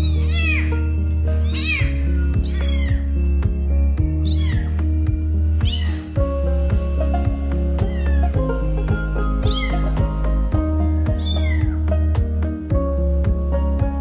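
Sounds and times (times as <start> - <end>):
kittens mewing: 0.0 - 3.2, 4.2 - 4.9, 5.6 - 6.2, 7.8 - 8.4, 9.4 - 10.1, 11.0 - 11.9
music with steady beat: 0.0 - 14.0.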